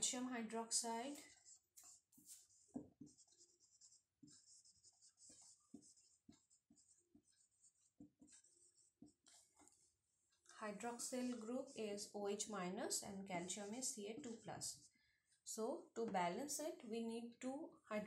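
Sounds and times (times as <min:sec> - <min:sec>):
pen scratching while writing: 0:00.7 - 0:14.9.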